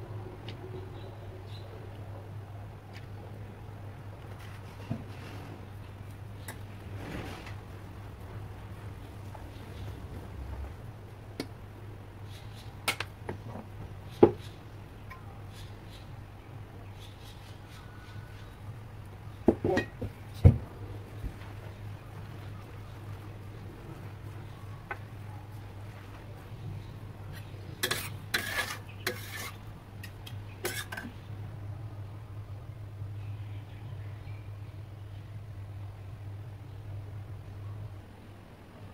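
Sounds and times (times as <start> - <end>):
steady low hum: 0.0 - 38.9
utensils clinking on a wok: 27.8 - 31.2.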